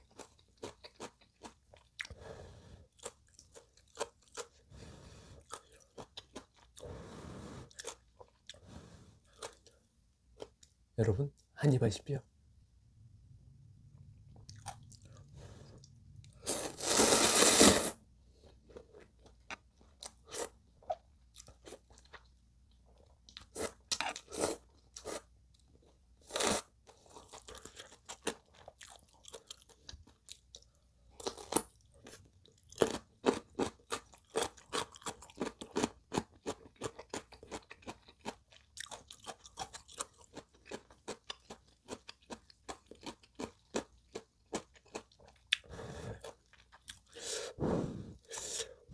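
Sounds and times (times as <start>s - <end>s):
chewing with crisp crunches: 0.0s - 2.2s, 2.9s - 4.7s, 5.4s - 6.9s, 7.7s - 9.8s, 14.3s - 17.0s, 18.3s - 47.3s
slurping noodles: 16.4s - 18.0s, 47.1s - 48.8s.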